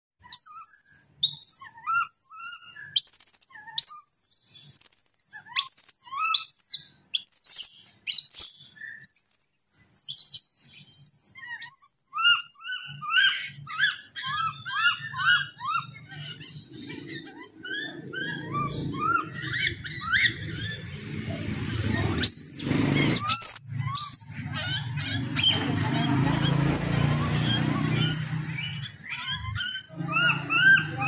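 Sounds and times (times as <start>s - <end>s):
baby monkeys screaming: 0.2s - 31.0s.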